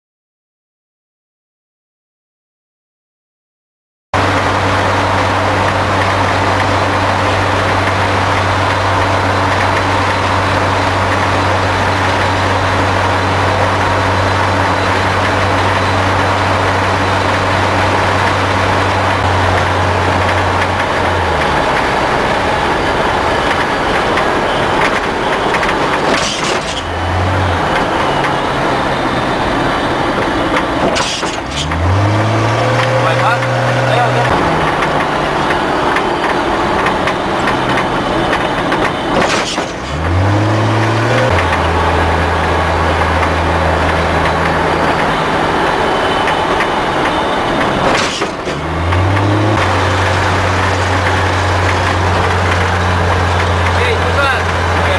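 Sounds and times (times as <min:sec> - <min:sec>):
road and wind noise: 0:04.2 - 0:54.9
vehicle engine droning: 0:04.2 - 0:54.9.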